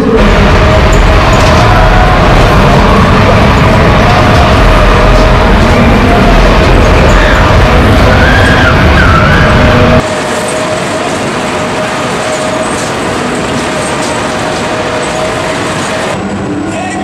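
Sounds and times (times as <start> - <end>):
loud music with heavy bass: 0.0 - 10.1
steady hum: 0.0 - 16.9
fairground rides running: 0.0 - 17.0.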